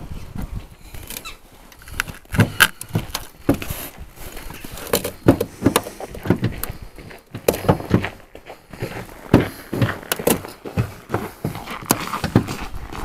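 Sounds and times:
metal poker knocking and scraping: 0:04.5 - 0:06.5.

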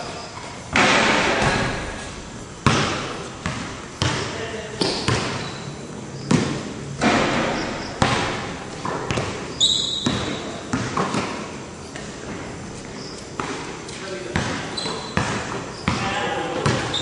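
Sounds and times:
basketball bouncing on court floor: 0:00.7 - 0:05.6, 0:06.2 - 0:11.4, 0:13.4 - 0:13.7, 0:14.3 - 0:17.0
short high squeak: 0:05.4 - 0:05.8, 0:09.5 - 0:10.4, 0:14.8 - 0:15.2.

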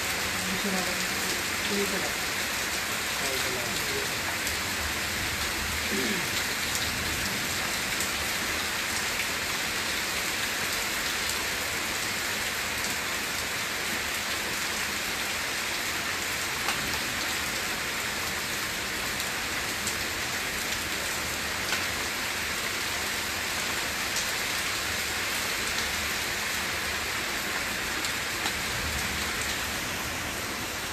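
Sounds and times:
heavy rain on ground and leaves: 0:00.0 - 0:30.9
raindrop ticks: 0:16.6 - 0:16.9.

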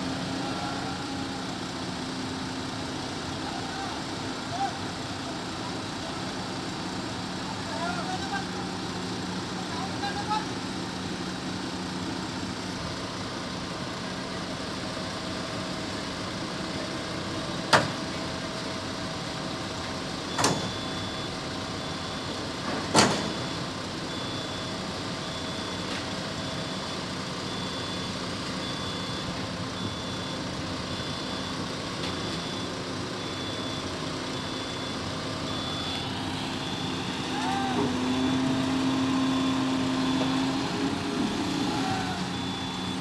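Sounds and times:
crane diesel engines running: 0:00.0 - 0:43.0
high repeating beep: 0:32.2 - 0:40.5, 0:41.5 - 0:43.0.

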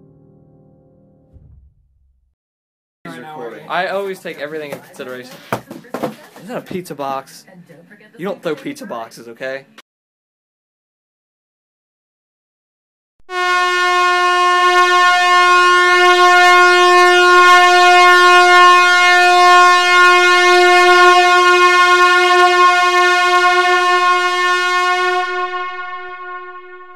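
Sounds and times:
steady horn-like tone: 0:13.3 - 0:26.9.

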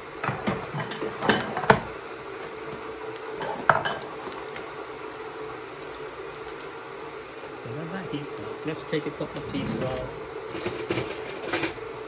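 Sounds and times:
dishes and utensils clinking: 0:00.2 - 0:01.8, 0:09.4 - 0:11.8.

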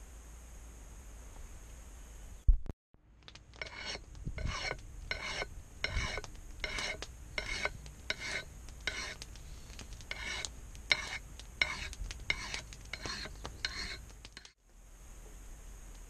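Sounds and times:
knife scraping: 0:03.6 - 0:09.2, 0:10.1 - 0:14.6.

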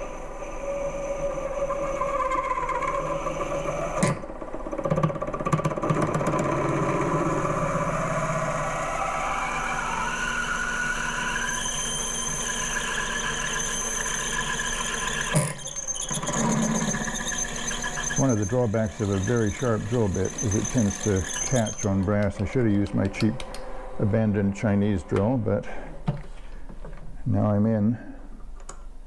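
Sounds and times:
lathe motor and cutting whine: 0:00.0 - 0:04.1, 0:05.7 - 0:25.3
drill bit clicking: 0:19.0 - 0:23.7.

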